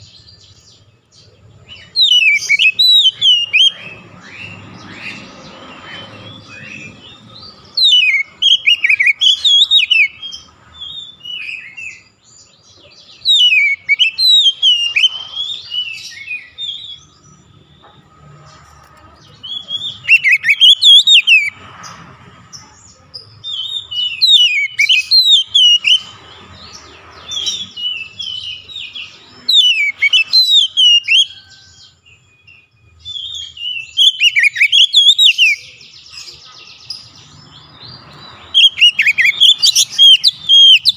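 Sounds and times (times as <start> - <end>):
bird singing whistled phrases: 1.8 - 4.6, 7.7 - 12.1, 13.2 - 17.0, 19.4 - 21.5, 23.4 - 26.1, 27.3 - 31.5, 32.3 - 35.9, 38.5 - 40.9.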